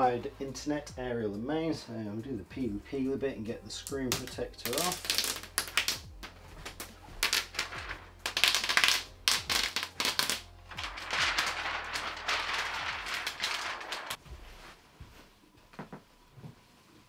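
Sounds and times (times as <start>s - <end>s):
plastic film crackling and rustling: 4.0s - 14.2s.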